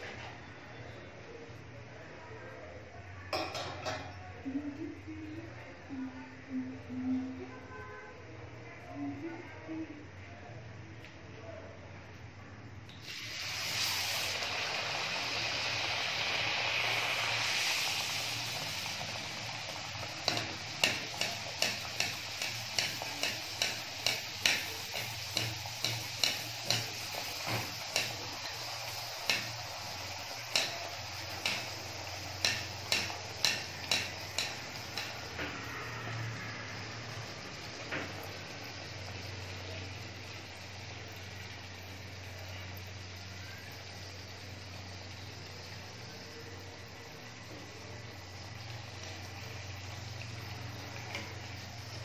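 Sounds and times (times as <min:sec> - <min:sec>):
food sizzling in hot oil: 0:12.9 - 0:52.0.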